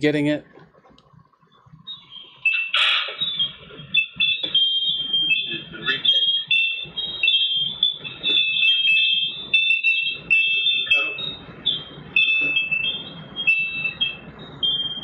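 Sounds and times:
muffled low sounds: 5.2 - 6.2.

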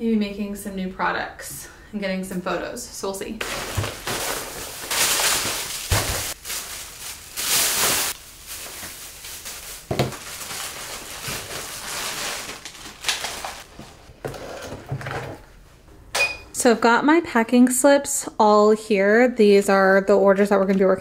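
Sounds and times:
plastic bags rustling: 3.4 - 14.5.

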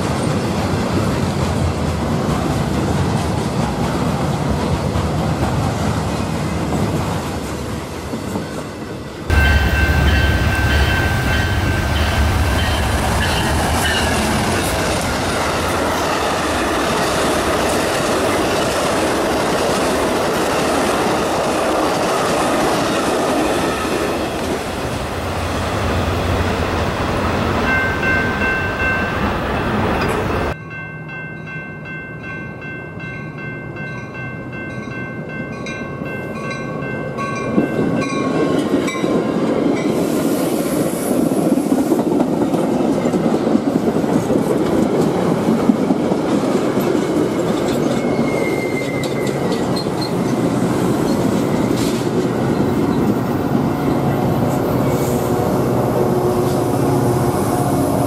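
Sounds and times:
passenger train passing: 0.0 - 58.0
crossing bell dinging: 9.3 - 15.0, 27.6 - 39.2
train horn chord: 54.9 - 58.0.

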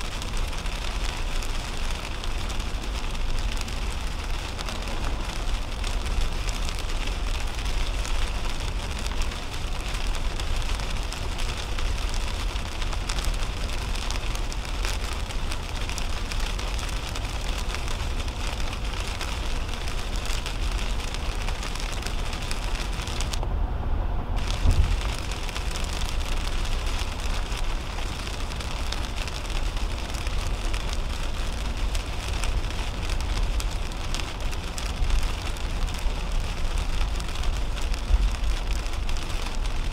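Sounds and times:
heavy rain on car roof: 0.0 - 23.5, 24.4 - 39.9
tyres rumbling on wet road: 0.0 - 39.9
low thump: 24.6 - 25.0.

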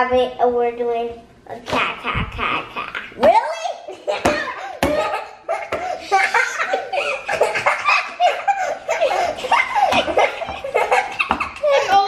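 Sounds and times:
boys laughing: 3.8 - 12.0.

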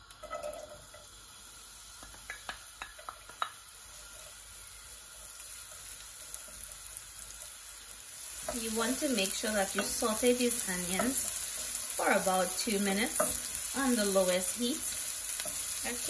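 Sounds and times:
onions sizzling in oil: 0.0 - 16.0
wooden spoon scraping a pan: 8.3 - 14.3.

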